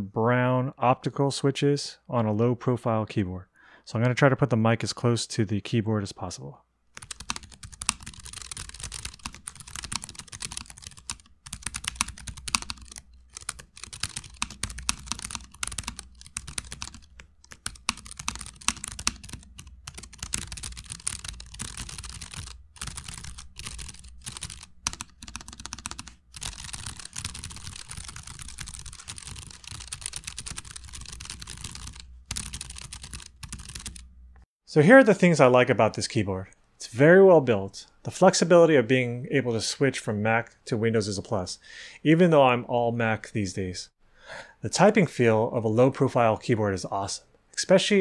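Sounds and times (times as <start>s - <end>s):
fast typing on keyboard: 7.0s - 34.1s.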